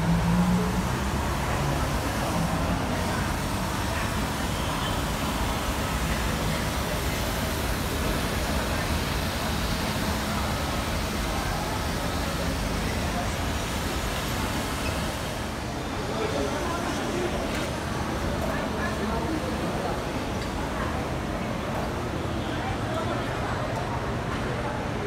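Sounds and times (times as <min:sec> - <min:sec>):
airport terminal ambient noise: 0:00.0 - 0:25.0.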